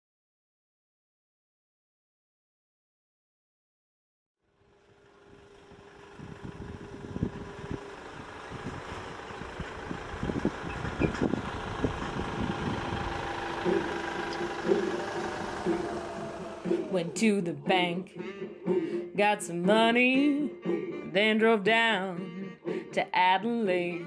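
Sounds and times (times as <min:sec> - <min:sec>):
diesel truck engine approaching: 0:04.5 - 0:24.0
irregular low rumbling: 0:06.1 - 0:19.2.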